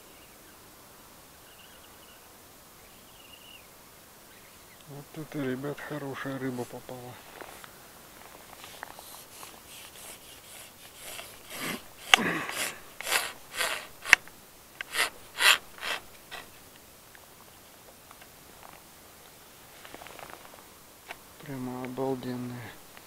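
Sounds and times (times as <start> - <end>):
scratchy rubbing and rustling: 5.2 - 16.6, 19.6 - 20.7
sharp clicks: 8.6 - 16.9.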